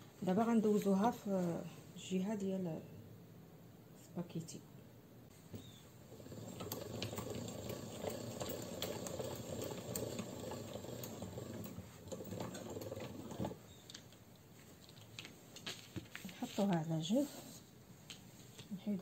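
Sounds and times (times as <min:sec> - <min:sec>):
pasta machine grinding rattle: 0:06.1 - 0:13.6.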